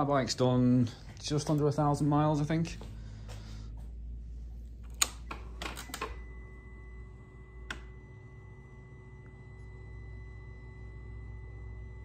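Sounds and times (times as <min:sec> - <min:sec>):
high-pitched electrical whine: 0:03.9 - 0:12.0
ignition switch clicks: 0:04.8 - 0:06.2.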